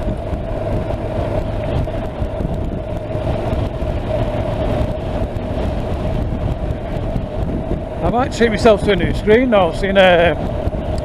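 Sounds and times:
motorcycle engine rumble: 0.0 - 11.0
wind and road noise: 0.0 - 11.0.

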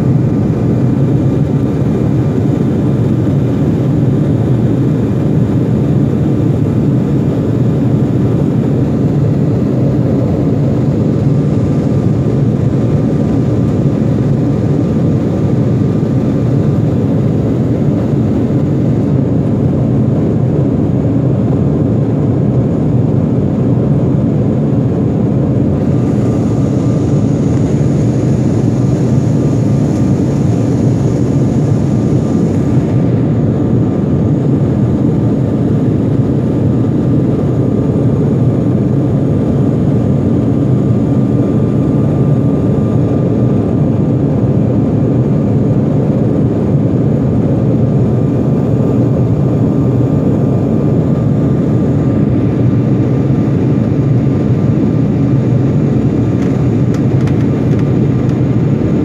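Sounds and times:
airliner cabin engine and air noise: 0.0 - 59.0
faint high whine: 24.6 - 59.0.

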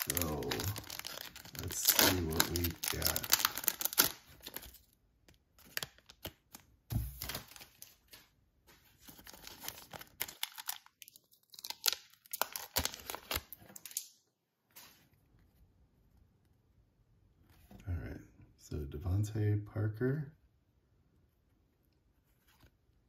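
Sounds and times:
foil wrapper tearing and crinkling: 0.0 - 4.9, 9.1 - 14.0.

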